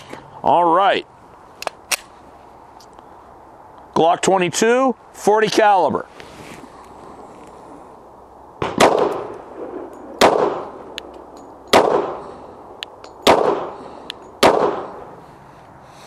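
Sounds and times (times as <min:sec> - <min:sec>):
pistol shots with echo: 0:08.6 - 0:11.0, 0:11.7 - 0:12.4, 0:13.2 - 0:13.8, 0:14.4 - 0:15.0.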